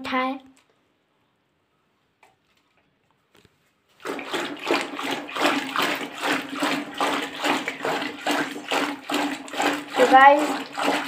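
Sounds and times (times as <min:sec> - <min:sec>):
churning rod sloshing liquid: 0:04.0 - 0:11.0.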